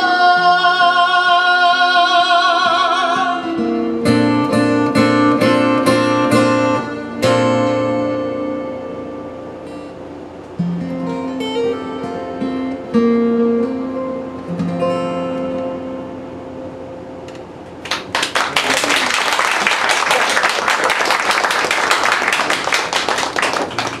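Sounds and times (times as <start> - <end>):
acoustic guitar playing: 0.0 - 17.8
audience applause: 17.8 - 24.0.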